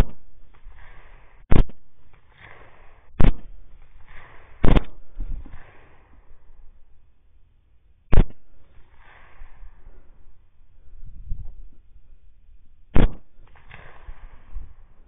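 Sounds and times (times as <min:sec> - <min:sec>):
rifle shots: 0:00.0 - 0:06.7, 0:08.1 - 0:09.8, 0:12.9 - 0:15.0.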